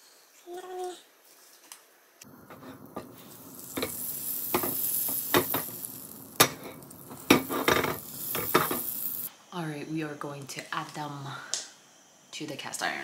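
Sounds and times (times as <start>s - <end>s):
butter sizzling in a skillet: 2.2s - 9.3s.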